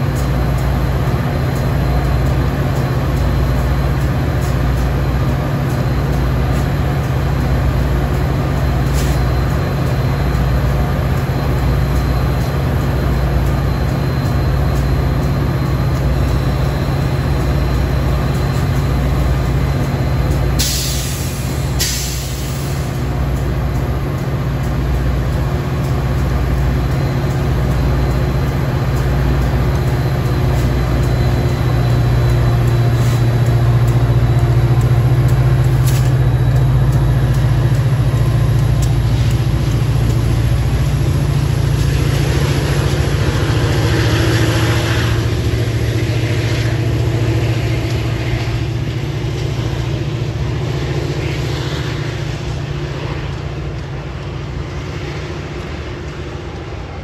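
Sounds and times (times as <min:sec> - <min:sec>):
locomotive engine droning: 0:00.0 - 0:57.0
air brake hiss: 0:20.6 - 0:23.0.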